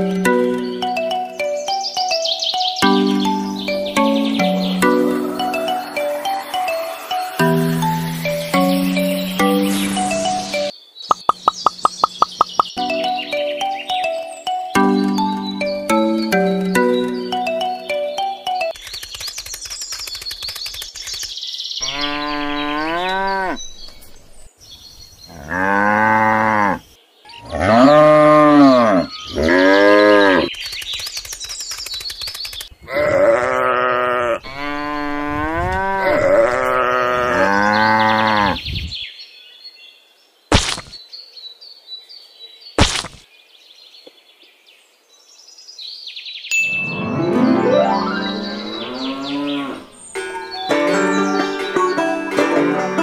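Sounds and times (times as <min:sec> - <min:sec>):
sharp clicks: 0:11.1 - 0:12.8, 0:18.7 - 0:21.4, 0:30.5 - 0:32.7
cows mooing: 0:21.8 - 0:23.6, 0:25.3 - 0:26.8, 0:27.4 - 0:30.5, 0:32.9 - 0:38.6, 0:48.0 - 0:50.0.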